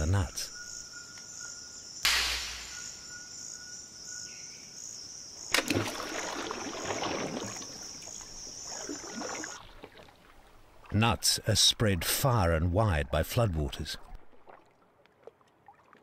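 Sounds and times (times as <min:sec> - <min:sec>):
insects chirring: 0:00.0 - 0:11.9
nut splashing into water: 0:05.5 - 0:07.9
water bubbling: 0:05.5 - 0:11.0, 0:13.9 - 0:16.0.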